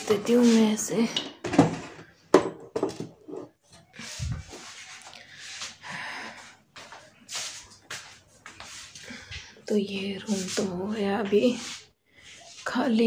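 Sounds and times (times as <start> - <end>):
metal tables knocking and clattering: 1.2 - 3.5.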